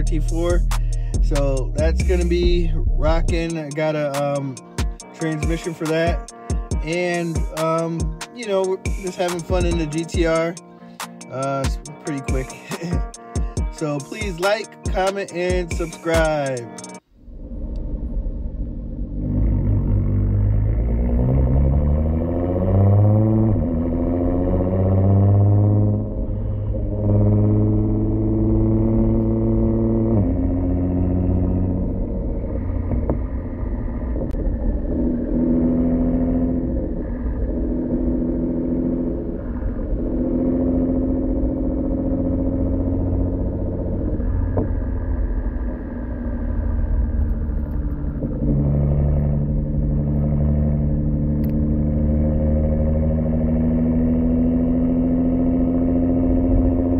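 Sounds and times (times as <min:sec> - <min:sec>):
car exhaust while driving: 0:00.0 - 0:06.1, 0:09.4 - 0:10.5, 0:17.1 - 0:56.9
car shifting gears: 0:19.2 - 0:56.9.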